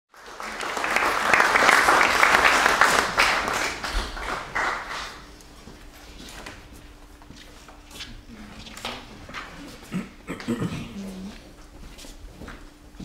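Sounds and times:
audience applauding: 0.1 - 5.3.

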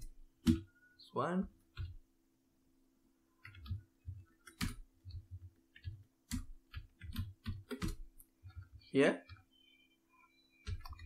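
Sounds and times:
keyboard keys clicking: 3.4 - 9.5, 10.6 - 11.0.

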